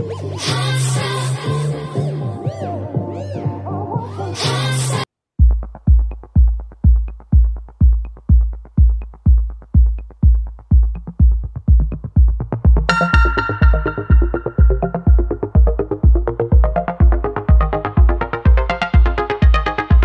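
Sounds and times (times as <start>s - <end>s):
drum machine kick beat: 5.4s - 20.0s
intro music: 5.6s - 20.0s
synthesizer chord: 12.9s - 20.0s.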